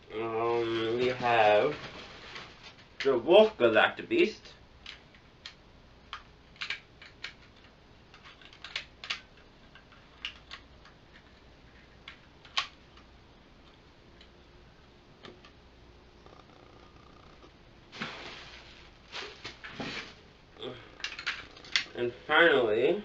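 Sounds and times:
plastic toy parts clicking: 4.8 - 11.4, 12.0 - 12.8, 21.0 - 21.9.

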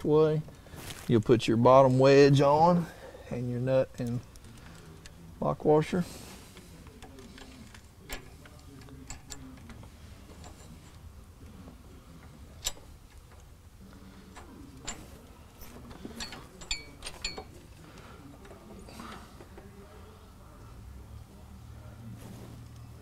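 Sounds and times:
metal hardware clicks and clinks: 6.8 - 11.1, 12.2 - 13.5, 14.2 - 19.7.

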